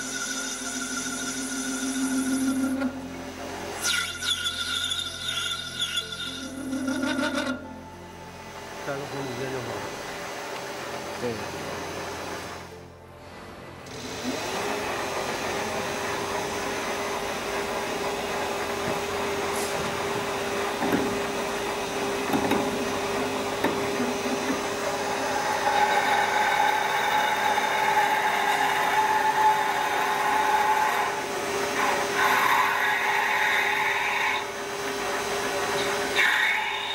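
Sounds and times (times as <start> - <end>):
drill cutting whine: 0.0 - 3.1, 3.7 - 7.7, 23.6 - 36.9
lathe whining: 0.0 - 36.9.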